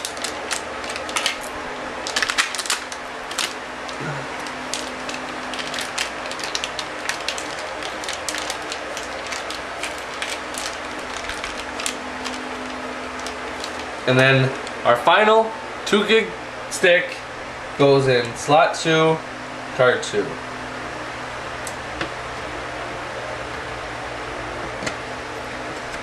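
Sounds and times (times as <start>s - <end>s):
plastic packaging crackling and clicking: 0.0s - 14.8s
faint steady hum: 0.0s - 26.0s.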